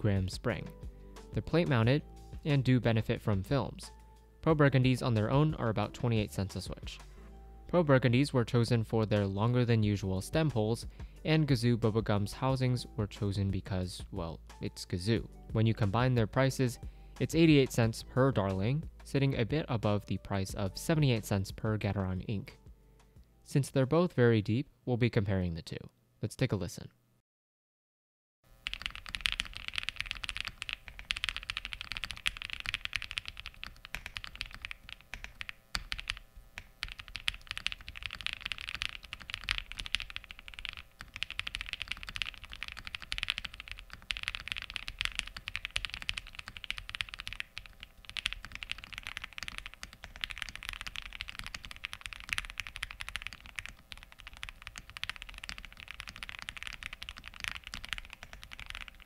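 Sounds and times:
typing on mechanical keyboard: 0:28.6 - 0:59.0.

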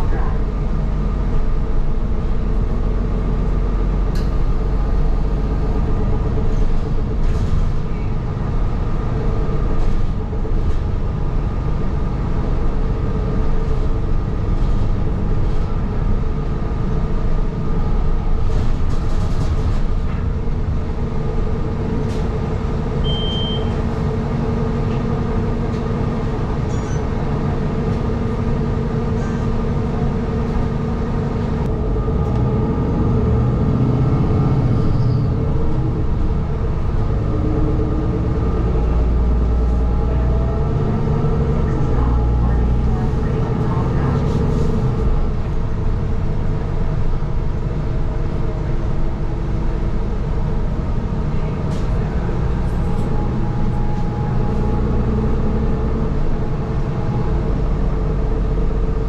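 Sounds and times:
bus body rattling: 0:00.0 - 0:59.0
bus engine drone: 0:00.0 - 0:59.0
short high beep: 0:23.0 - 0:23.8.

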